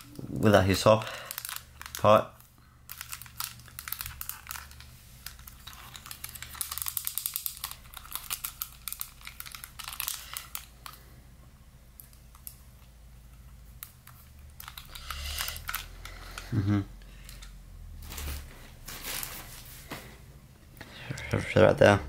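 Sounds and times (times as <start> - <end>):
crinkly rustling: 0.0 - 11.0, 13.7 - 16.5, 18.0 - 20.2.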